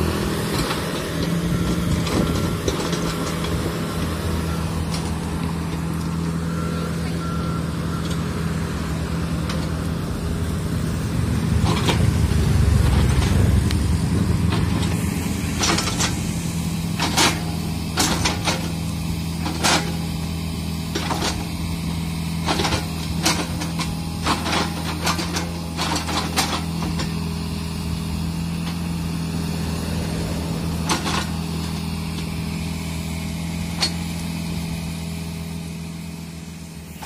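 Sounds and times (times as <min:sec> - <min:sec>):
diesel engine running under load: 0:00.0 - 0:37.0
excavator bucket digging soil: 0:00.0 - 0:37.0.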